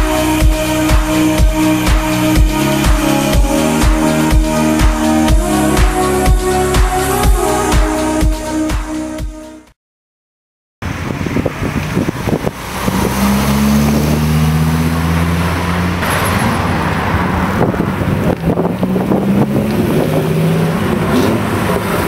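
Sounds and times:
wind noise on microphone: 10.8 - 15.7, 17.2 - 22.0
car passing close: 10.8 - 22.0
sports car engines pulling away: 10.9 - 22.0.

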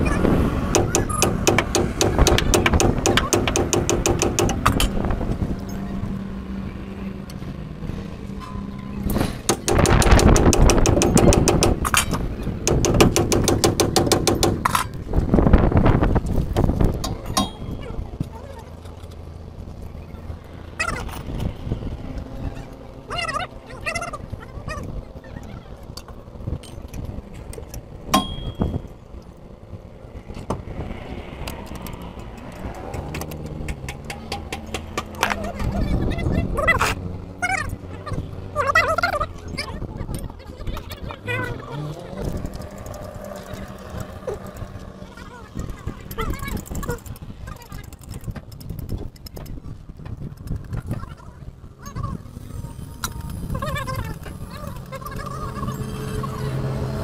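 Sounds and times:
rapid hammer blows on steel: 0.7 - 4.9, 9.4 - 12.0
metal tools clinking: 17.0 - 18.0.

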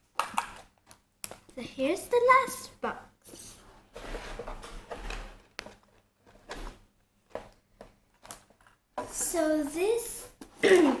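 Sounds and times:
cardboard sliding and rustling: 3.9 - 5.4.

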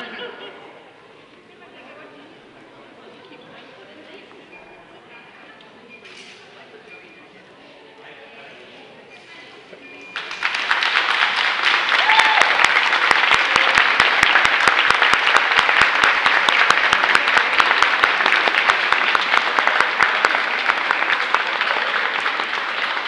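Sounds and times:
spectators applauding: 10.1 - 23.0.

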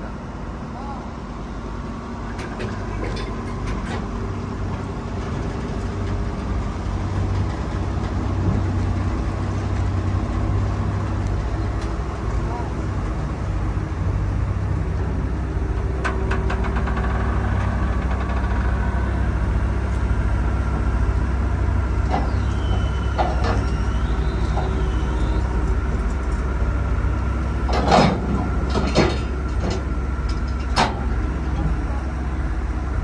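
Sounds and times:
excavator diesel engine running: 0.0 - 33.0
high wavering whine: 15.6 - 27.6.

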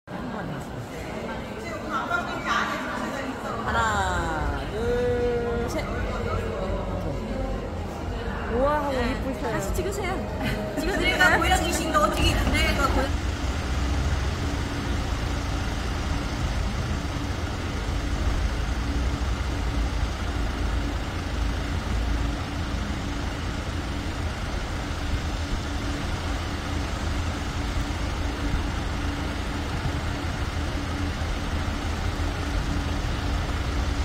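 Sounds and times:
faint steady hum: 0.1 - 34.0
car engine idling: 3.6 - 34.0.

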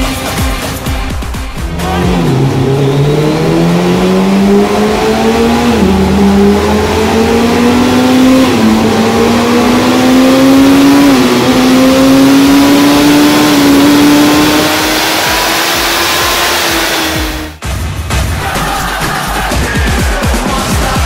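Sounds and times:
motorcycle engine accelerating: 1.1 - 17.6.

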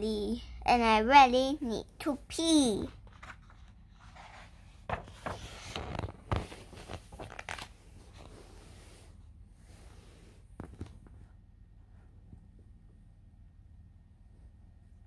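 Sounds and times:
book pages rustling and turning: 2.9 - 9.2, 9.8 - 11.3.

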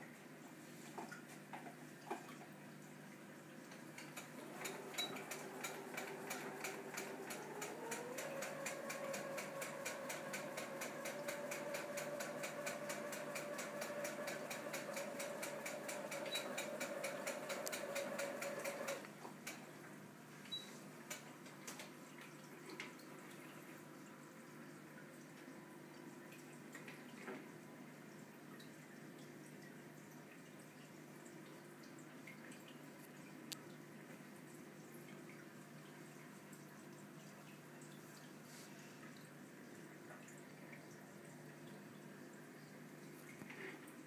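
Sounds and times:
small motor humming and ticking: 4.0 - 19.6.

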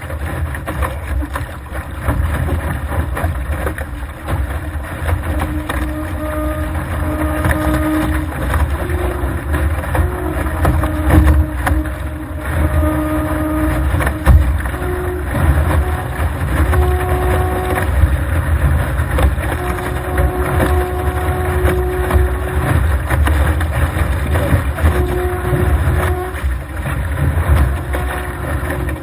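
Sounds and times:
water rushing and splashing: 0.0 - 29.0
wind buffeting microphone: 0.0 - 29.0
humming tone shifting in pitch: 5.1 - 18.3, 19.4 - 23.2, 24.4 - 26.6, 27.5 - 29.0.

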